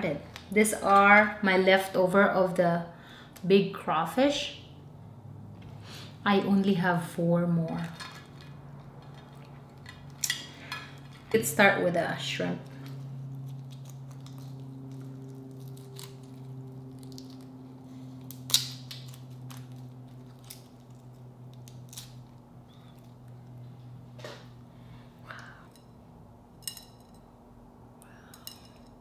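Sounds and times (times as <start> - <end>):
low hum: 0.0 - 29.0
shrimp shell crackling: 13.3 - 23.4.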